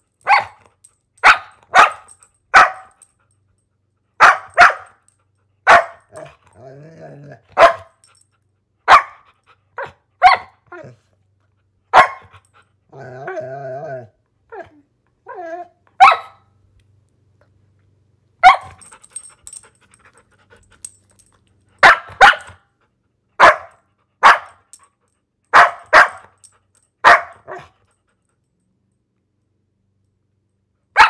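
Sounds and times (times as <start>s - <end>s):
dog barking: 0.2s - 0.6s, 1.2s - 3.0s, 4.2s - 5.0s, 5.6s - 6.2s, 7.6s - 8.0s, 8.9s - 10.6s, 11.9s - 12.3s, 16.0s - 16.5s, 18.4s - 18.8s, 21.8s - 22.6s, 23.4s - 24.6s, 25.5s - 26.3s, 27.0s - 27.8s.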